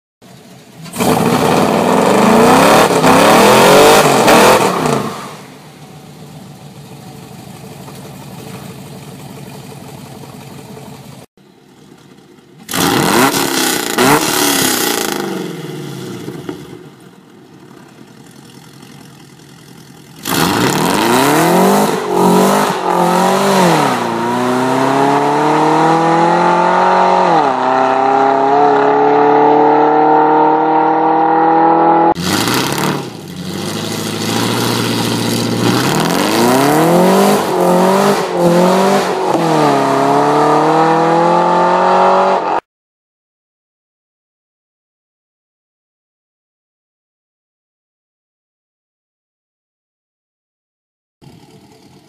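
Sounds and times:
car engine accelerating hard: 0.8 - 5.4, 12.6 - 16.5, 18.1 - 42.6.

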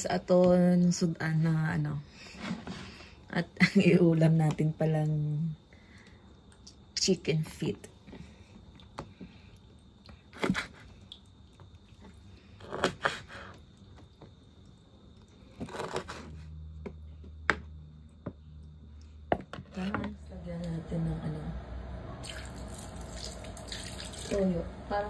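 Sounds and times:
low steady hum: 13.6 - 25.0.

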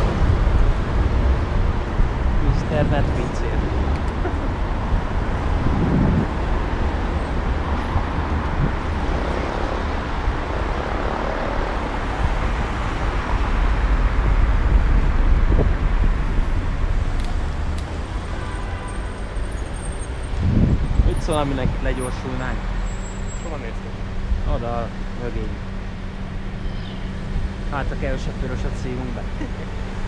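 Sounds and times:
wind buffeting microphone: 0.0 - 17.5, 20.3 - 21.8
passing cars: 0.0 - 30.0.

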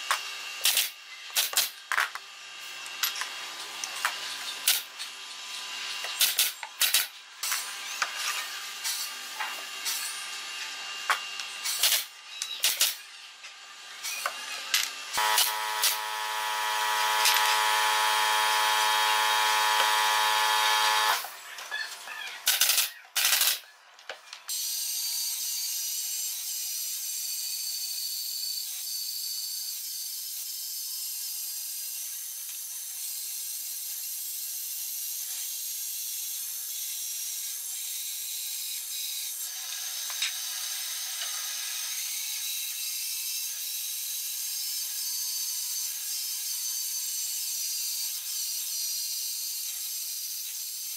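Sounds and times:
band saw cutting wood: 13.7 - 21.4
loud steady hum: 15.1 - 21.3.

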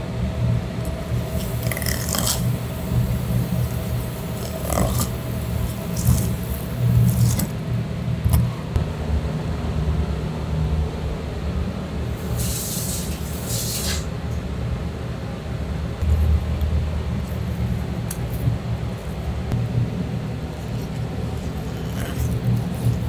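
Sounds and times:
knife rasping along fish bones: 1.3 - 2.6, 4.2 - 7.6, 20.7 - 23.0
low rumble: 16.0 - 21.7.

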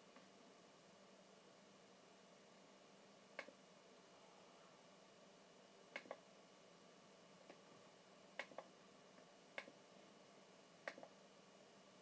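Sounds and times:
computer mouse button clicks: 10.9 - 11.1.

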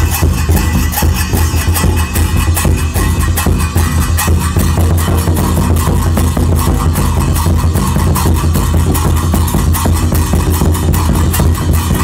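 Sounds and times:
barrel drum beating: 0.0 - 12.0
handheld cymbals clashing: 0.0 - 12.0.

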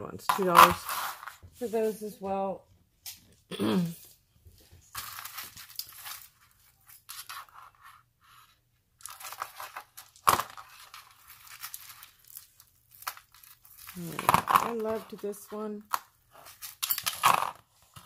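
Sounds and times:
necklaces crinkling and rustling: 4.0 - 8.0, 9.0 - 18.0.

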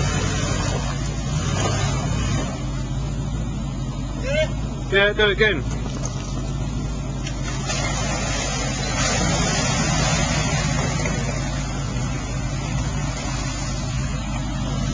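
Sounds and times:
mud and water splashing: 0.0 - 3.1, 5.6 - 14.9
suv engine under load: 0.0 - 14.9.

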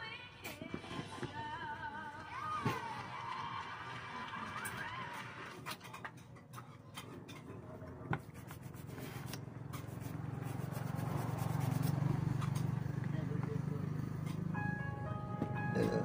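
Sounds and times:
toothbrush scrubbing: 8.2 - 12.6.

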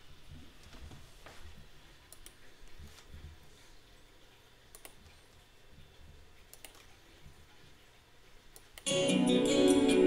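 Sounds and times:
sharp clicks: 4.7 - 5.0, 6.5 - 6.9.

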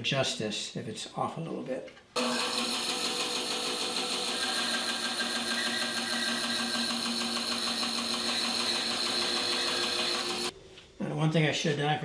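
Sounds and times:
band saw cutting wood: 2.2 - 10.5.

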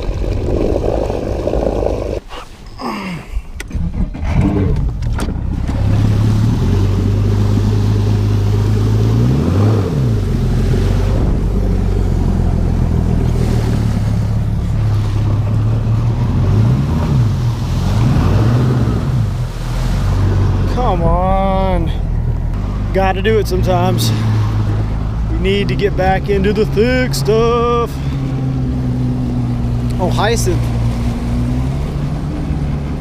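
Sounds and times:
outboard motor running: 0.0 - 2.3, 3.7 - 33.0
water and hull noise: 0.0 - 33.0.

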